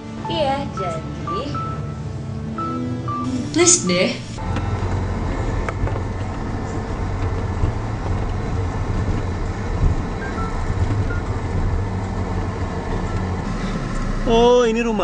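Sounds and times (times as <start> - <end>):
car engine rumbling: 3.2 - 15.0.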